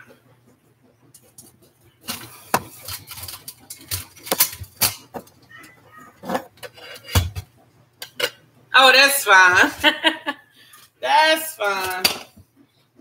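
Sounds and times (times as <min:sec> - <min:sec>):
dishes and utensils clicking: 0:01.1 - 0:08.4.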